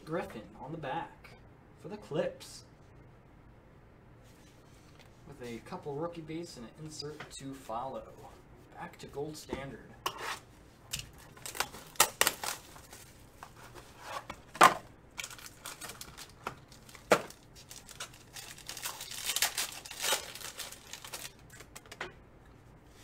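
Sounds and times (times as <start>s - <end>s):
foil wrapper being torn: 10.9s - 13.0s, 15.2s - 21.9s
foil wrapper crinkling: 10.9s - 13.8s, 15.2s - 22.0s.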